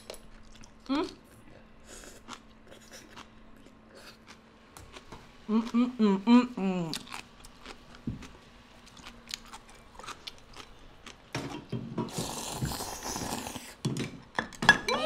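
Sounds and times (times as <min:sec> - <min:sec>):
noodles slurped: 0:12.1 - 0:13.8.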